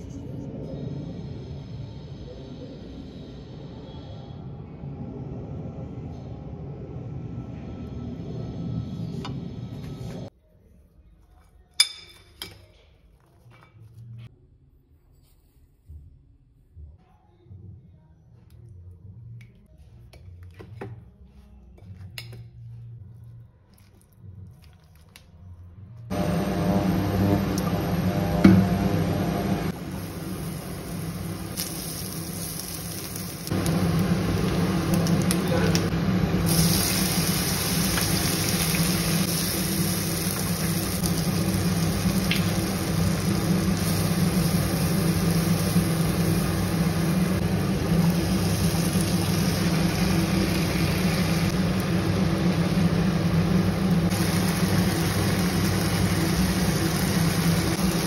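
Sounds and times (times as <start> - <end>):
induction cooktop humming: 25.7 - 58.0
food sizzling in hot oil: 29.8 - 35.4, 36.4 - 58.0.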